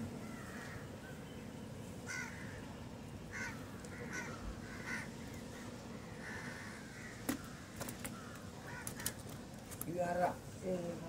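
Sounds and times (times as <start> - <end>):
low steady background noise: 0.0 - 11.0
crows cawing: 0.2 - 0.9, 2.0 - 2.7, 3.3 - 9.4.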